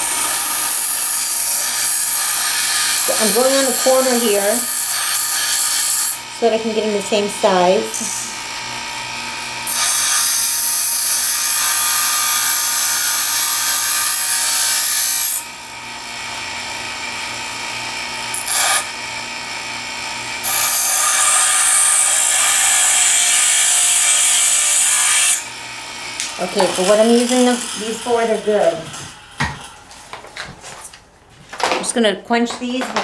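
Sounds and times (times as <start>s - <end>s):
bench grinder humming: 0.0s - 30.3s
metal grinding on wheel: 26.3s - 29.7s.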